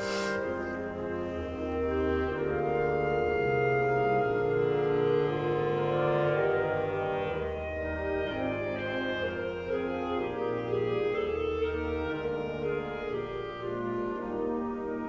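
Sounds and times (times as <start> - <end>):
slow instrumental music: 0.0 - 5.0.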